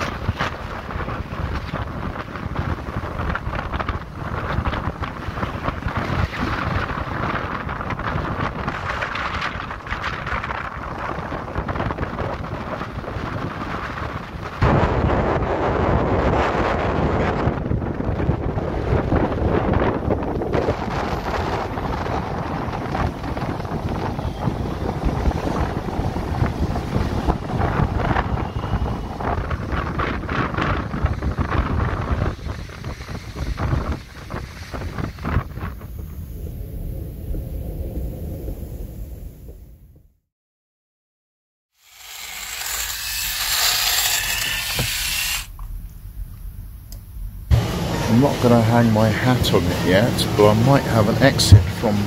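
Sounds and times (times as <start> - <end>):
storm surf breaking: 0.0 - 39.5, 45.5 - 52.0
gusty wind buffeting microphone: 0.0 - 40.1, 41.9 - 52.0.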